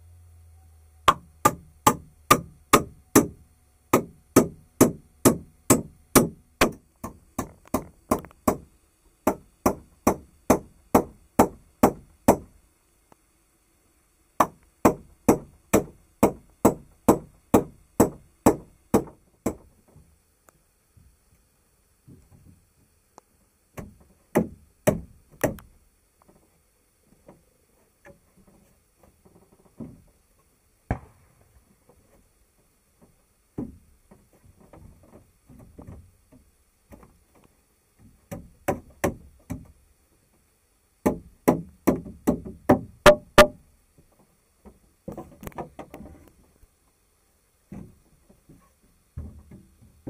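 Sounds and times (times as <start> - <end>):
wood being struck: 1.0 - 12.5, 14.4 - 19.7, 30.9 - 31.4, 41.0 - 43.6.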